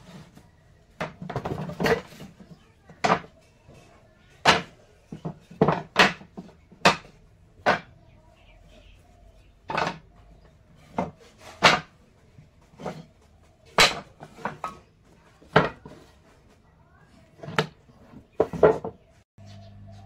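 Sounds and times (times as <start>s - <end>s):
hand tools knocking on wood: 1.0s - 3.4s, 4.4s - 8.0s, 10.8s - 12.0s.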